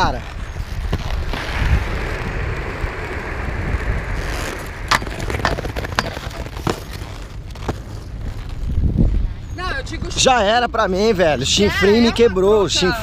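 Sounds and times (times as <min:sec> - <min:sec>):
inline skates rolling on asphalt: 0:00.0 - 0:13.0
skates grinding on metal handrail: 0:04.5 - 0:08.8.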